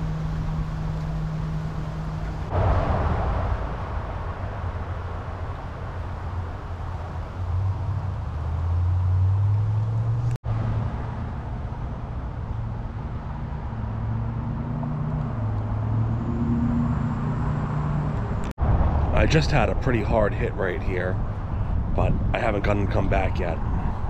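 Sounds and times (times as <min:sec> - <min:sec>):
motor engine droning: 0:00.0 - 0:24.0
wind buffeting microphone: 0:02.1 - 0:08.8, 0:18.2 - 0:24.0.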